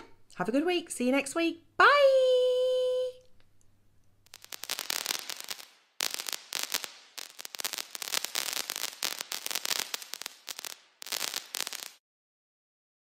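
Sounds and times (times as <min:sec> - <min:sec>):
rapid crackling and popping: 0:04.2 - 0:12.0.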